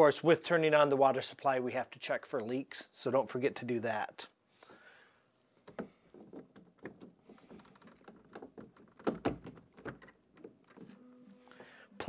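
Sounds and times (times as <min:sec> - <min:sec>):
hands clicking and tapping: 0:05.6 - 0:10.9.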